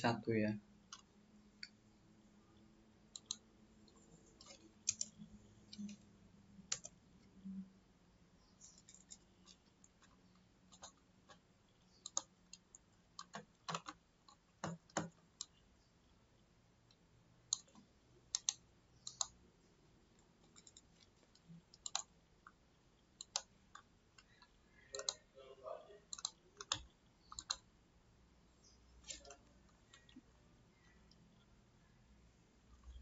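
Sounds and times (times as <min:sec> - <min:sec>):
computer mouse clicks: 0:00.9 - 0:01.8, 0:03.1 - 0:07.4, 0:08.5 - 0:15.6, 0:16.9 - 0:19.4, 0:20.1 - 0:25.3, 0:26.1 - 0:27.7, 0:28.6 - 0:31.5.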